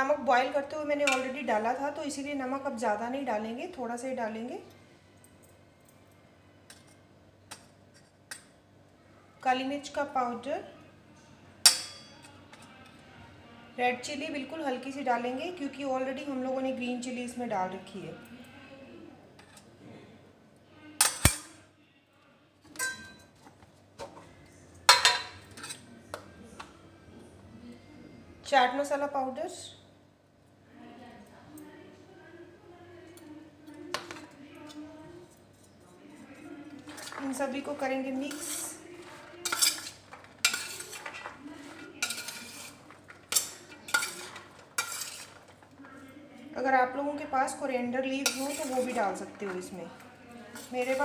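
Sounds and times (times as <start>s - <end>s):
spoon clinking on steel bowl: 22.8s - 23.3s, 39.4s - 41.2s, 42.0s - 45.4s, 48.2s - 49.0s.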